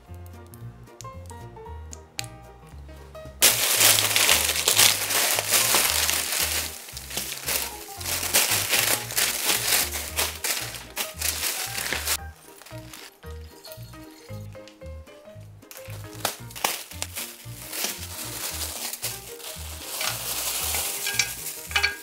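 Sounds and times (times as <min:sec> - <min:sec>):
background music with bass line: 0:00.0 - 0:22.0
plastic packaging crinkling: 0:03.4 - 0:14.4, 0:15.7 - 0:22.0.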